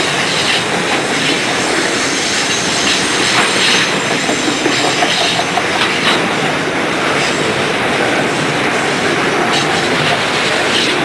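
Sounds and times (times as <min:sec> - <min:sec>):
train wheels rumbling on rail: 0:00.0 - 0:11.0
wheel clicks at track joints: 0:00.5 - 0:06.5.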